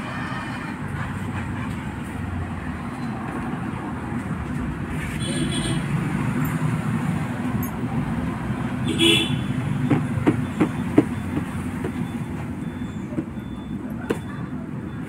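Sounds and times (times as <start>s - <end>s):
road traffic: 0.0s - 15.0s
vehicle horn toot: 5.2s - 5.9s, 8.8s - 9.6s.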